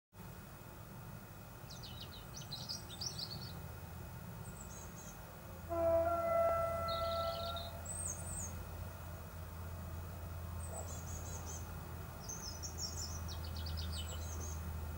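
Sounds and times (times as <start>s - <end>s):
low steady rumble: 0.2s - 14.9s
songbirds chirping: 1.5s - 14.9s
distant train horn: 5.6s - 8.6s.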